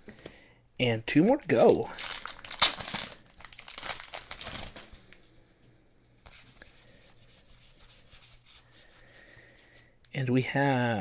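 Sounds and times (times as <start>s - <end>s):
foil wrapper rustling: 1.5s - 4.9s.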